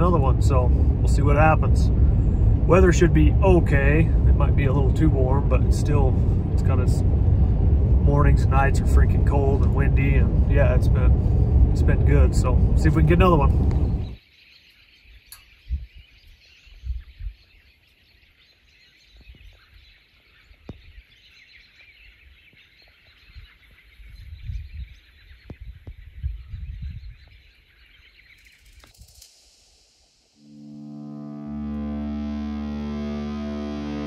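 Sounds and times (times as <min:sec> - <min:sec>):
wind buffeting microphone: 0:00.0 - 0:14.2, 0:15.5 - 0:17.7, 0:22.0 - 0:29.2
small birds chirping: 0:11.8 - 0:30.5.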